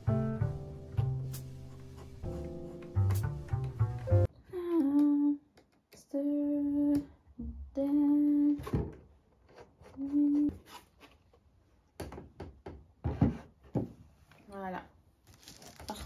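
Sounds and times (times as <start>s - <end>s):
person humming: 4.4s - 5.4s.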